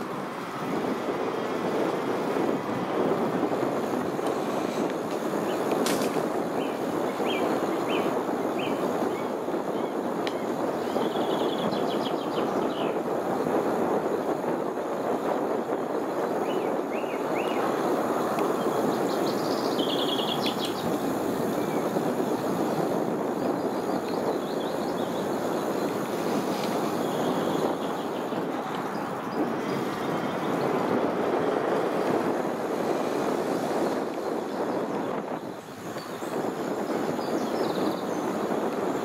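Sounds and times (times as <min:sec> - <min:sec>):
bicycle tyres rolling on tarmac: 0:00.0 - 0:39.0
birds chirping: 0:03.8 - 0:13.0, 0:16.0 - 0:31.1, 0:34.2 - 0:39.0.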